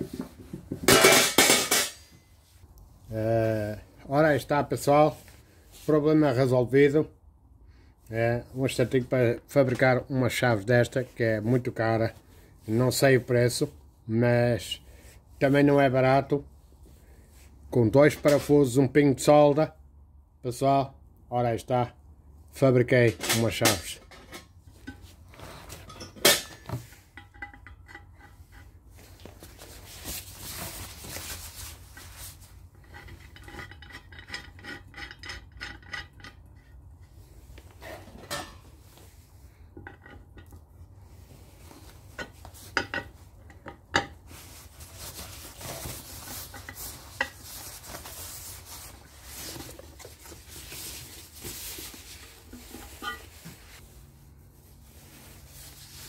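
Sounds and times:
metal clinks and knocks: 25.7s - 28.8s, 32.8s - 36.8s, 52.5s - 53.5s
plastic wrap and cardboard rustling: 29.0s - 32.6s, 44.2s - 56.0s.

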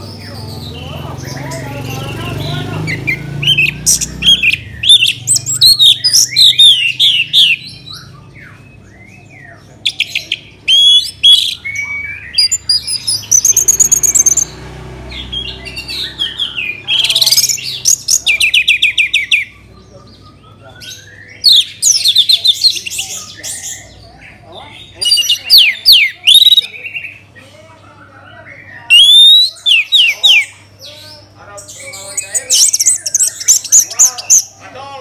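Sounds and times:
thrush singing: 0.0s - 24.4s.

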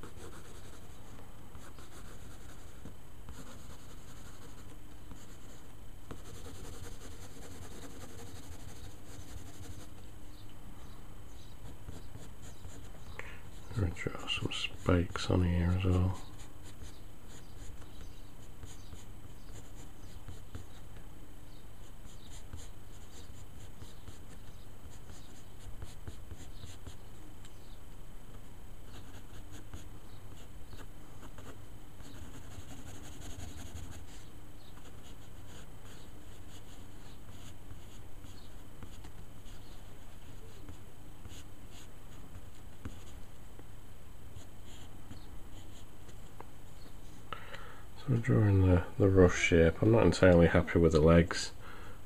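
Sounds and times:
steady low hum: 0.0s - 52.0s
pencil scratching on paper: 1.6s - 10.0s, 11.6s - 13.7s, 16.2s - 20.8s, 28.9s - 34.2s.

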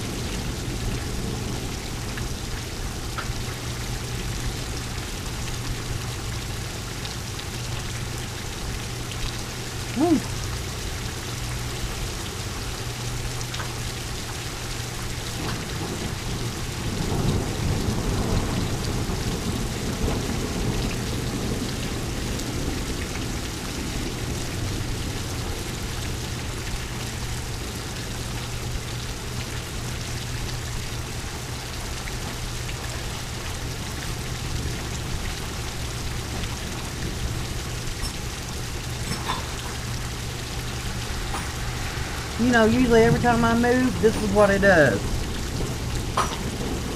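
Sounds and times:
steady rain: 0.0s - 46.9s
thunder rumbling: 15.0s - 27.0s, 39.6s - 46.9s.

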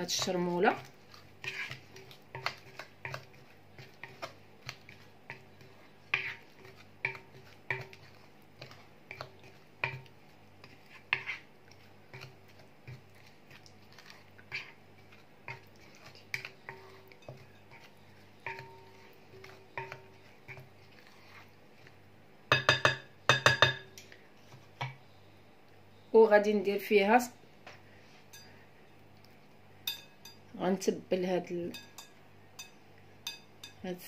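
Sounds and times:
spatula scraping glass bowl: 0.1s - 4.3s, 4.9s - 21.9s.

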